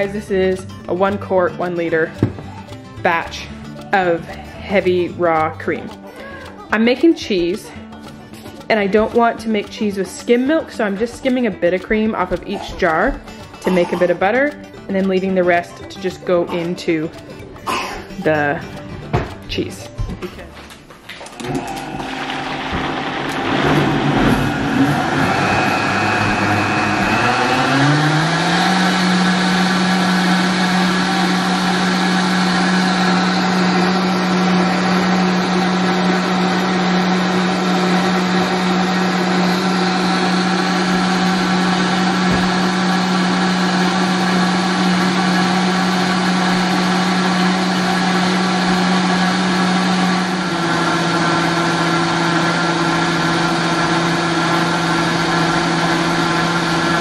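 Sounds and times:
blender motor running: 21.4s - 57.0s.

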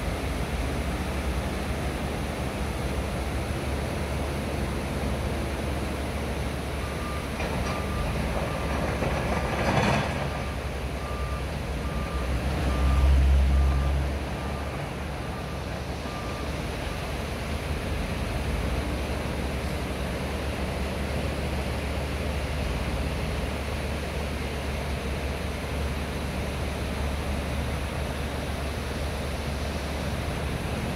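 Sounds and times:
reversing alarm beeping: 6.8s - 9.0s, 10.4s - 17.0s.

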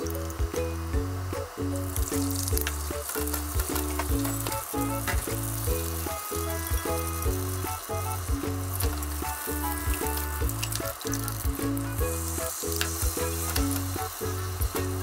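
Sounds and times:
background music with bass rhythm: 0.0s - 15.0s
egg sizzling in a pan: 0.0s - 15.0s
chopsticks clicking against a pan: 9.9s - 11.6s, 12.7s - 13.9s.

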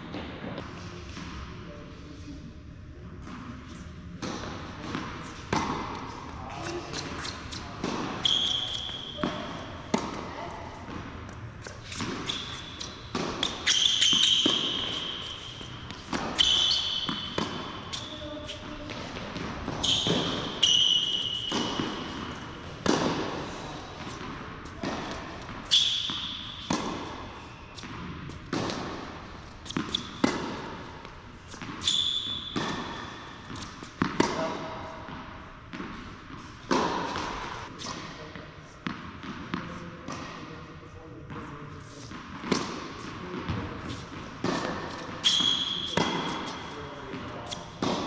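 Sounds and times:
sneakers squeaking on court: 3.7s - 38.1s, 41.3s - 48.0s
racket striking ball: 4.2s - 38.2s, 42.0s - 48.0s
ball bouncing: 6.6s - 30.6s.

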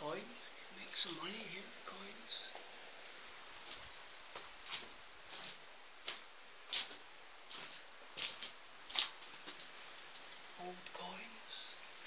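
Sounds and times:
footsteps crunching on pebbles: 3.6s - 9.8s.

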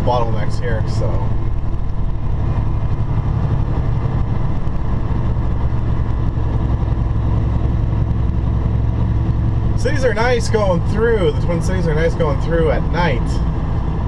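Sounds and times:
road noise: 0.0s - 14.0s
truck engine drone: 0.0s - 14.0s.

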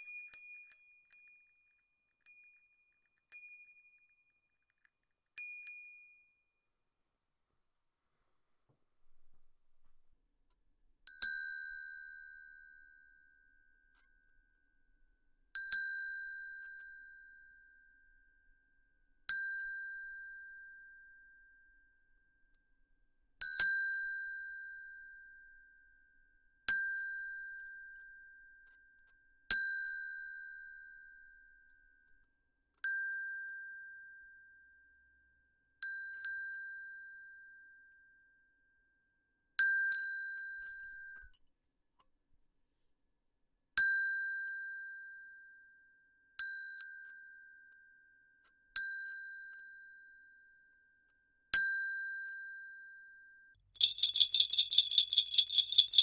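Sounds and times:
small bell ringing: 0.0s - 4.3s, 53.8s - 56.0s.

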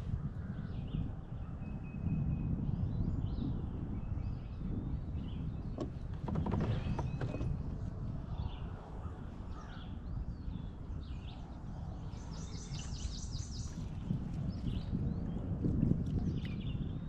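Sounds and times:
songbirds chirping: 3.3s - 15.5s.

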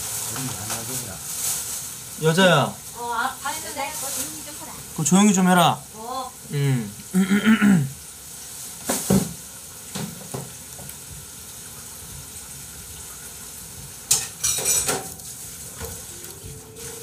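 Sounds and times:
steady hiss: 0.0s - 17.0s
dishes and cutlery clattering: 14.1s - 15.2s.

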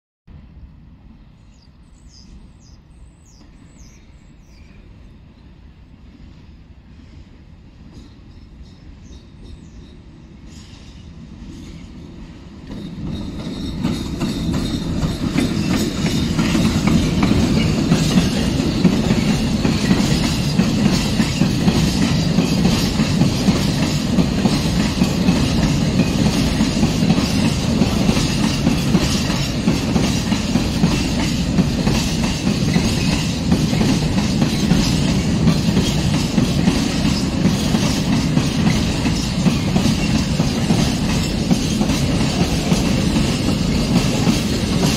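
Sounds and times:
electric locomotive passing: 0.3s - 44.9s
wheels clacking over rails: 12.6s - 44.9s
freight wagons rumbling: 12.7s - 44.9s.

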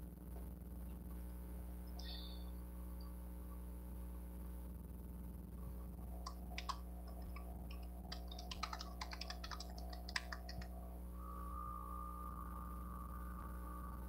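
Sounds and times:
steady low hum: 0.0s - 14.0s
light irregular clicks: 6.3s - 10.7s
steady high tone: 6.3s - 14.0s.

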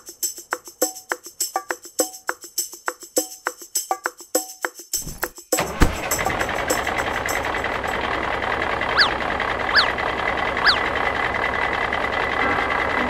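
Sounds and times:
tractor engine idling: 5.0s - 13.0s
short falling chirps: 9.0s - 10.0s, 10.6s - 10.9s.

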